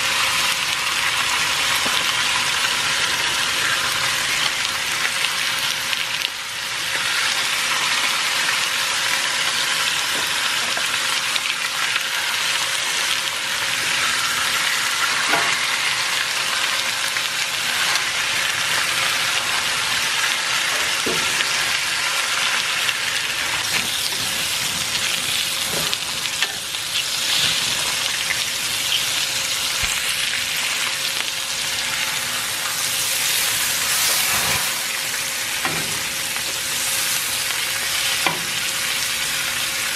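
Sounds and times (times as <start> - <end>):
bacon sizzling on a griddle: 0.0 - 39.9.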